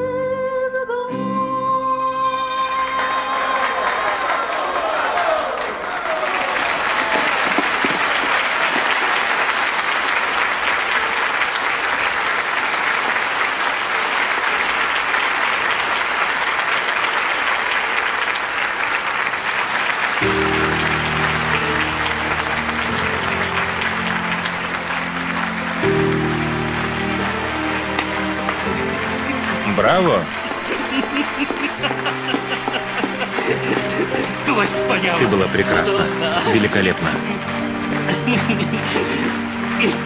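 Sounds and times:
audience applauding: 0:02.8 - 0:40.0
low sustained music: 0:20.1 - 0:40.0.

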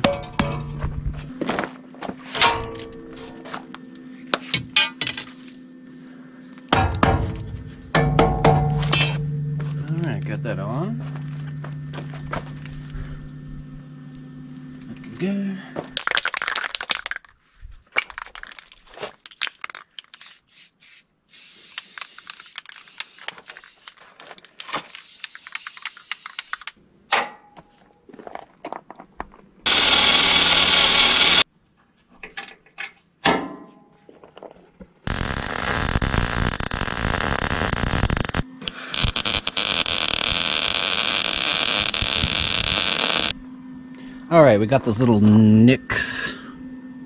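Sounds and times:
tools and parts clinking: 0:00.0 - 0:00.9, 0:02.3 - 0:03.7, 0:04.4 - 0:05.6, 0:08.0 - 0:09.3, 0:32.2 - 0:34.6
welder arcing on steel: 0:24.8 - 0:26.8, 0:29.7 - 0:31.4, 0:35.1 - 0:43.4
cordless drill running: 0:29.7 - 0:31.4, 0:35.1 - 0:43.3.

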